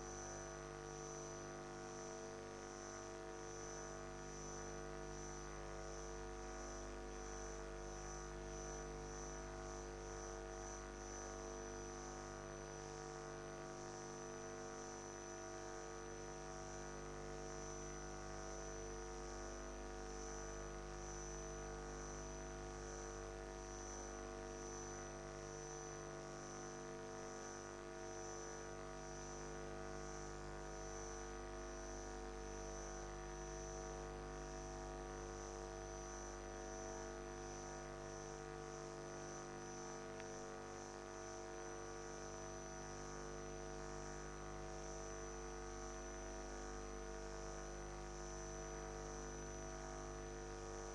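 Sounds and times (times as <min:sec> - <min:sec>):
electronic hum with held tones: 0:00.0 - 0:50.9.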